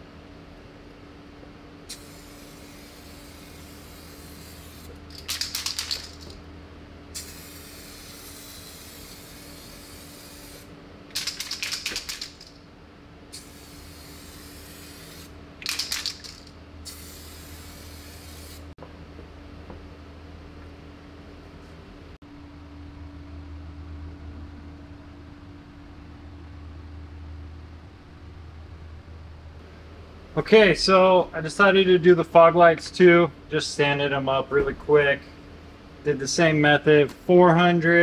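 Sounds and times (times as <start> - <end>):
aerosol can spraying: 1.9 - 6.4, 7.2 - 12.5, 13.3 - 18.7.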